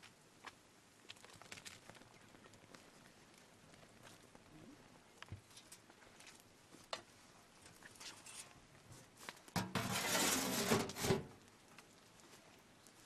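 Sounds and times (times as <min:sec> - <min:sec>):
metal lid clattering onto pot: 0:09.6 - 0:11.2.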